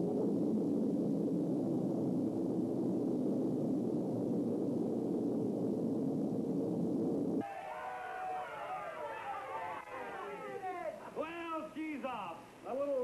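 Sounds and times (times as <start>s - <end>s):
rocket engines rumbling: 7.2s - 12.7s.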